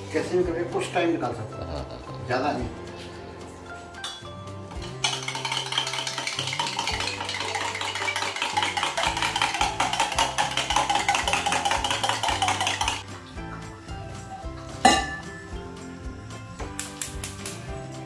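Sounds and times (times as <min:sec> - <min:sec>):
background music: 0:00.0 - 0:18.0
metal clinking of egg beating: 0:04.8 - 0:13.0.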